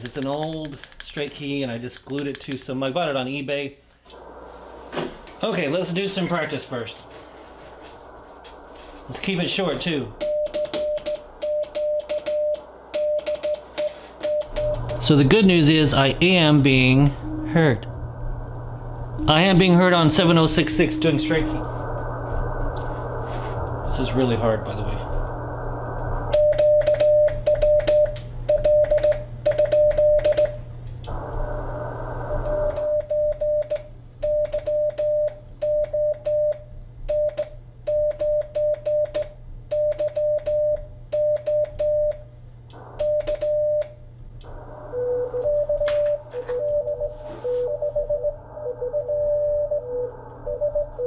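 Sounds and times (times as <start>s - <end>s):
receiver hiss: 3.5s - 33.4s, 42.3s - 51.0s
lower morse tone: 4.1s - 36.5s, 42.7s - 51.0s
morse code beeps: 10.2s - 17.8s, 19.2s - 21.7s, 26.3s - 30.6s, 32.3s - 42.2s, 43.0s - 43.9s, 44.8s - 51.0s.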